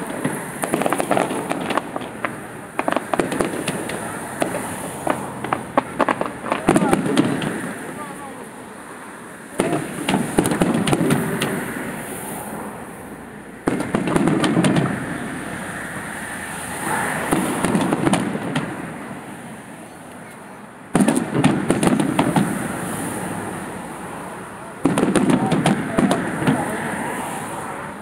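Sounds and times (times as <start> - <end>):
firework shells bursting with bangs: 0.0 - 8.2, 9.5 - 12.2, 13.6 - 15.8, 16.8 - 19.3, 20.9 - 23.0, 24.8 - 27.0
fireworks crackling: 0.0 - 8.8, 9.4 - 19.8, 20.9 - 27.6.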